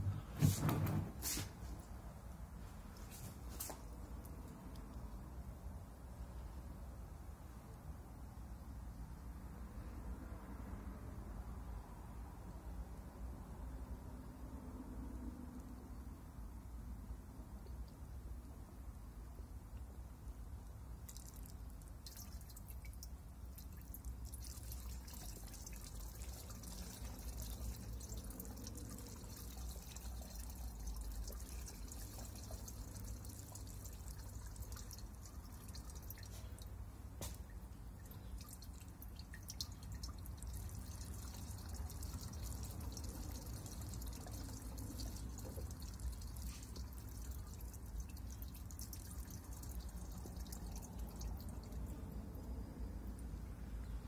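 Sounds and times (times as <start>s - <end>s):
small drip ticks: 2.9s - 5.3s, 17.6s - 18.6s, 19.5s - 53.5s
gasoline trickling into can: 21.0s - 51.9s.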